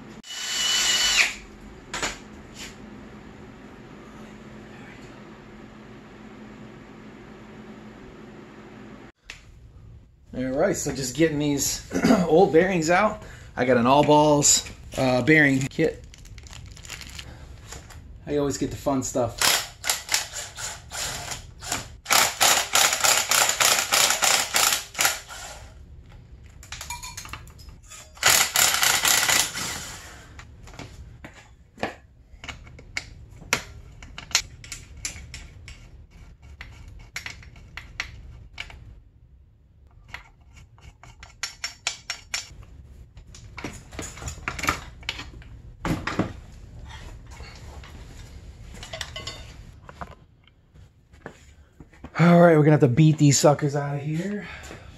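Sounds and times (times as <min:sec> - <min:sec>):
impact driver rattling: 0:19.4 - 0:25.4.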